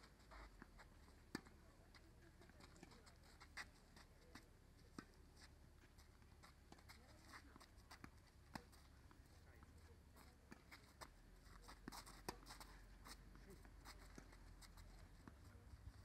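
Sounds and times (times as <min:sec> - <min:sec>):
tennis balls struck by rackets: 0:10.3 - 0:12.7.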